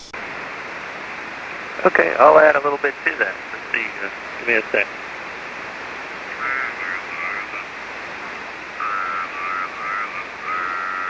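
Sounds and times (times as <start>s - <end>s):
radio receiver hiss: 0.0s - 11.0s
garbled warbling radio tones: 6.3s - 7.8s, 8.8s - 11.0s.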